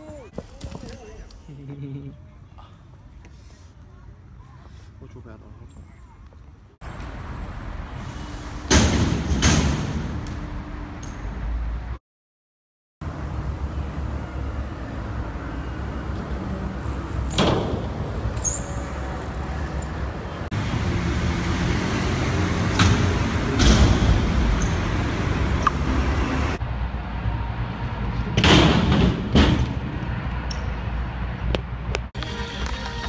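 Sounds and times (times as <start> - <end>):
bike tyres rolling on concrete: 16.1 - 21.0
bike landing knocks and clatters: 17.3 - 18.6.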